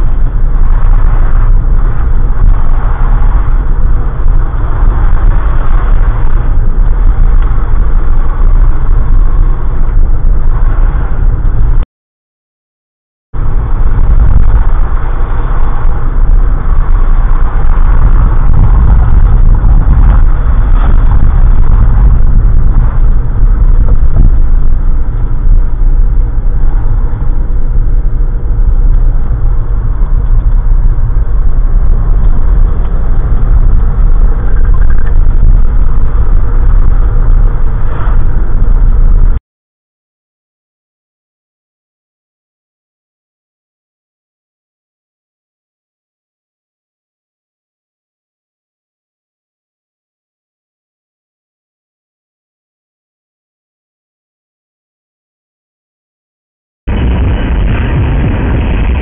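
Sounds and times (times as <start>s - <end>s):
car driving rumble: 0.0s - 11.8s, 13.4s - 39.4s, 56.9s - 59.0s.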